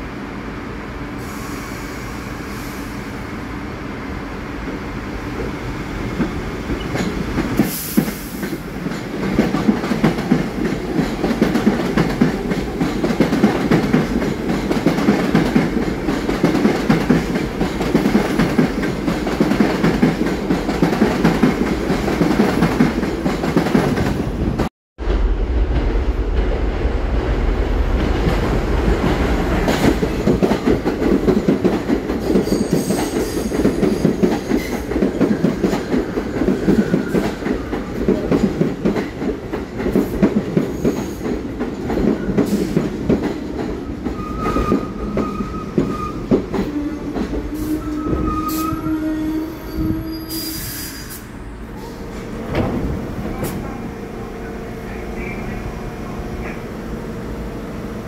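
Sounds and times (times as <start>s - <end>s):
subway train rumble: 0.0s - 58.0s.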